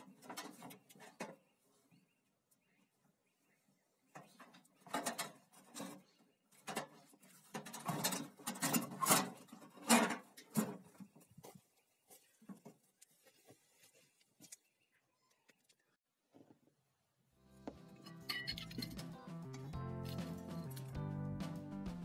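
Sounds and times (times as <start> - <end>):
sheet metal scrapes and clanks: 4.9 - 10.8.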